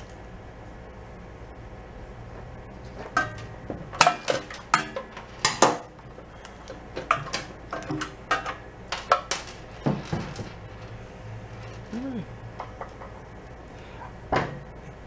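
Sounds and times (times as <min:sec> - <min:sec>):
tools and metal parts clinking: 0:03.2 - 0:12.0.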